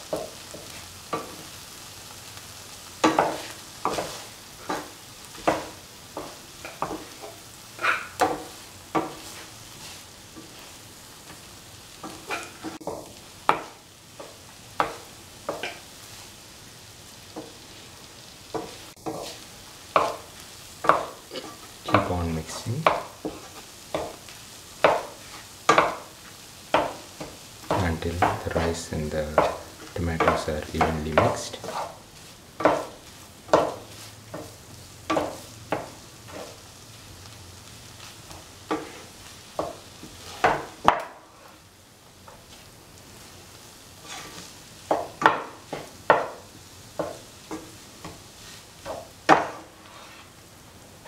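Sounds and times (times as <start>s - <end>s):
faint steady sizzle: 0.0s - 51.0s
metal spatula scraping rice in pan: 3.0s - 10.8s, 24.8s - 26.1s, 26.7s - 36.6s, 38.0s - 41.6s, 44.0s - 44.6s, 48.4s - 50.4s.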